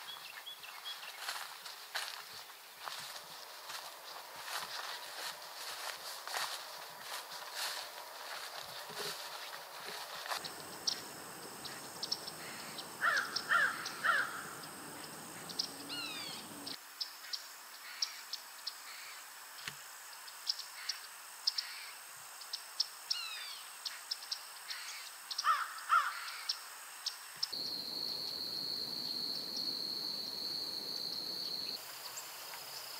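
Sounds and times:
loud bird calls: 10.3s - 16.8s
falling whistled bird calls: 10.4s - 16.8s.

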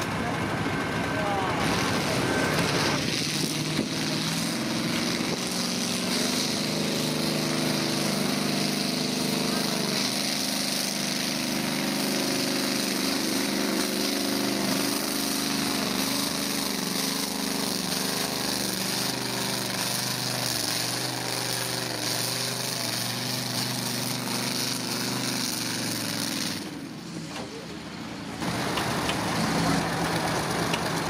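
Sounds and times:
tractor engine labouring: 0.0s - 31.0s.

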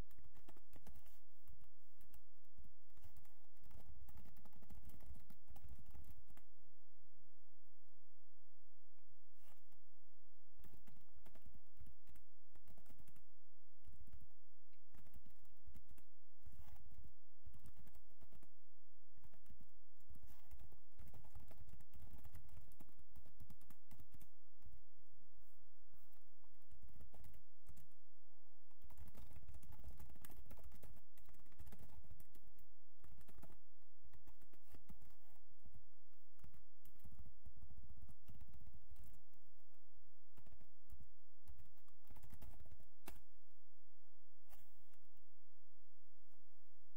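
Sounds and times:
keyboard keystroke clicks: 40.4s - 43.2s.

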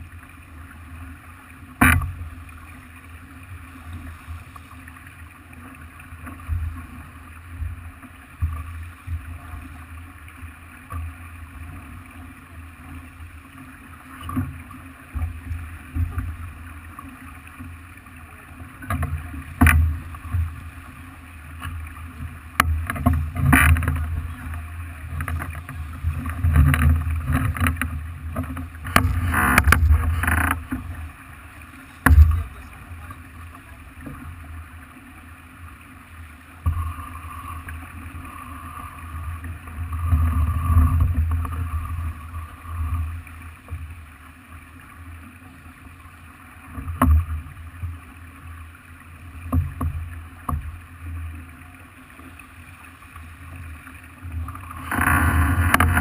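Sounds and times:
rumbling wind and water: 0.0s - 56.0s.

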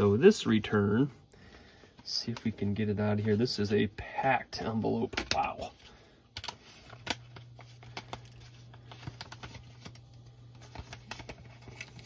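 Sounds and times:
low steady hum: 0.0s - 12.0s
paper envelope rustling and crinkling: 6.4s - 12.0s.

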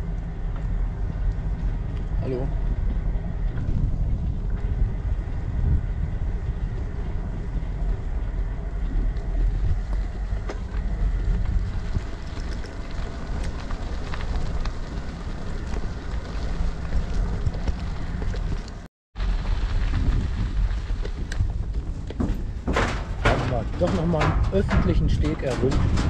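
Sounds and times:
wind buffeting microphone: 0.0s - 26.0s
bike clicks and rattles: 5.6s - 26.0s
bicycle tyres crunching on gravel: 6.0s - 22.8s.

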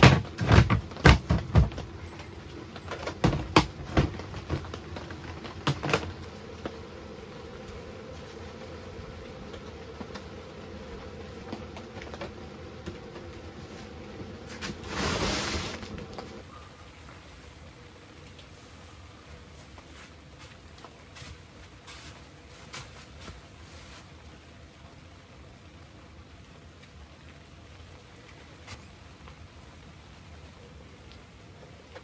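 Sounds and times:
rustling: 0.0s - 16.5s, 18.4s - 24.4s
faint steady hum: 0.0s - 32.0s.

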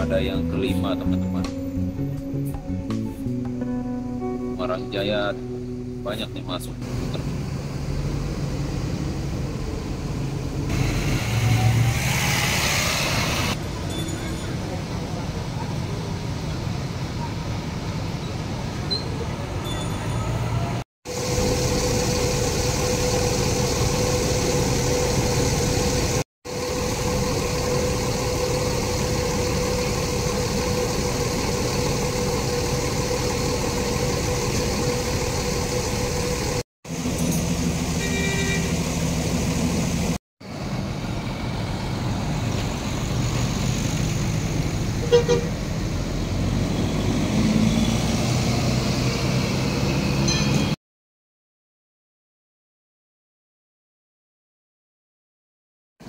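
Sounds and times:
diesel buses driving past: 6.1s - 50.8s
vehicle horn: 38.0s - 38.8s, 45.0s - 45.6s.

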